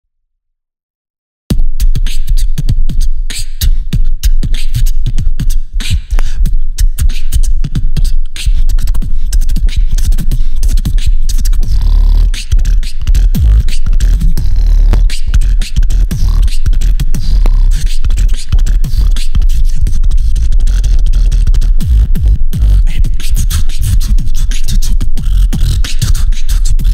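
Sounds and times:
beatboxing into a microphone: 1.5s - 26.9s
held bass tones: 11.6s - 26.1s.

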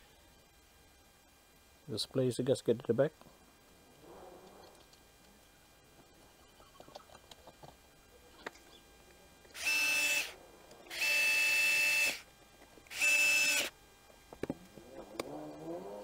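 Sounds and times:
electric screwdriver whine: 9.5s - 12.3s, 12.9s - 13.8s.

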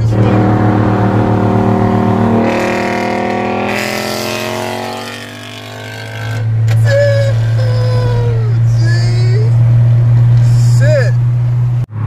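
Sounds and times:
low cabin drone: 0.0s - 11.9s
car engine revving at full throttle: 0.0s - 12.0s.

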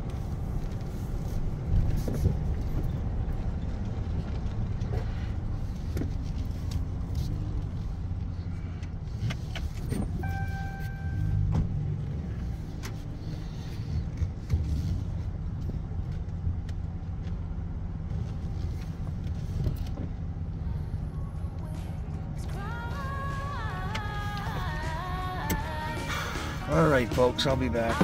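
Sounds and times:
vehicle engine running: 0.0s - 28.0s
short beep: 10.2s - 11.4s.

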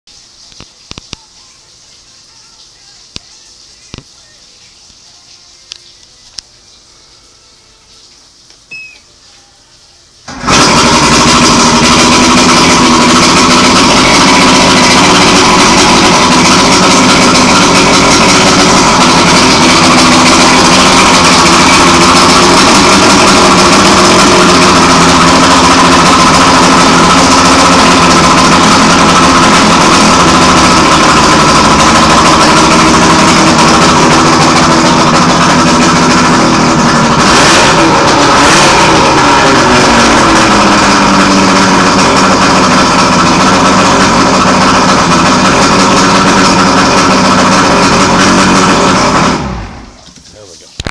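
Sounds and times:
outboard motor starting and running: 10.2s - 50.2s.

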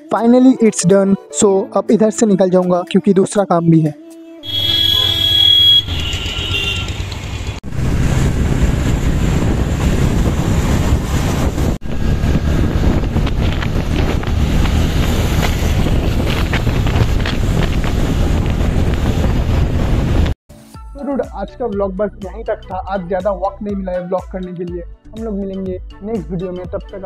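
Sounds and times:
high steady tone: 4.4s - 6.7s
road and traffic noise: 4.4s - 20.4s
wind rumble on microphone: 7.4s - 20.4s.

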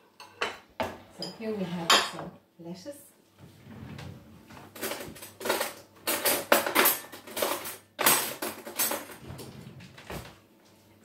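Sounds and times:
metal cutlery rattling in drawer: 4.8s - 9.5s.

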